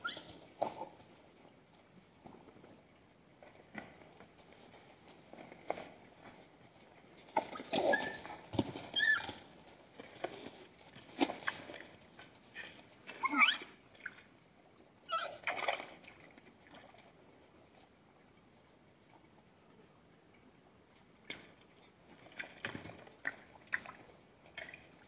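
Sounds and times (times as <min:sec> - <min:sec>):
squeaky zebra calls: 0:00.0 - 0:00.3, 0:09.0 - 0:09.4, 0:13.2 - 0:13.7, 0:15.1 - 0:15.4
splashing in shallow water: 0:15.3 - 0:17.2.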